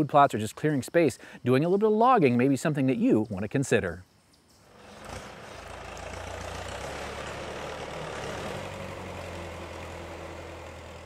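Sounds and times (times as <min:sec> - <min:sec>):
log skidder engine running: 0:04.6 - 0:11.0.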